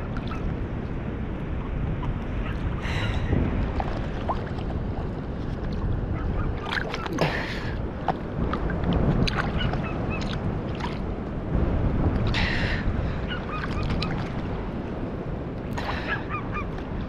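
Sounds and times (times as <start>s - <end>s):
water sloshing: 0.0s - 17.0s
wind rumbling on microphone: 0.0s - 17.0s
water splash: 2.9s - 11.2s, 13.5s - 14.4s.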